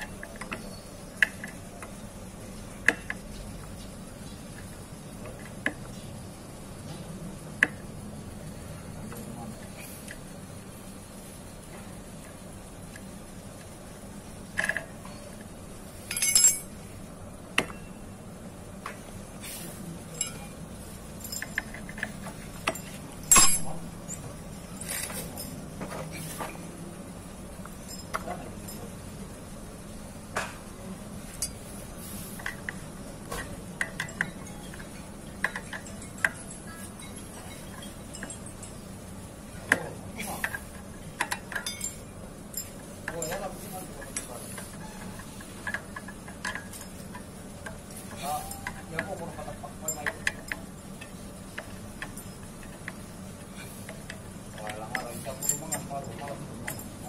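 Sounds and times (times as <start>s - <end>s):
metal tools clinking: 14.5s - 16.8s, 20.0s - 26.7s, 27.6s - 29.1s, 31.3s - 31.8s, 32.4s - 57.0s.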